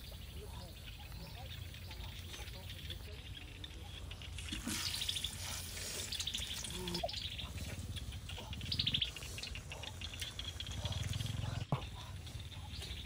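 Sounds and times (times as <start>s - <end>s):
food sizzling in hot oil: 4.4s - 6.8s.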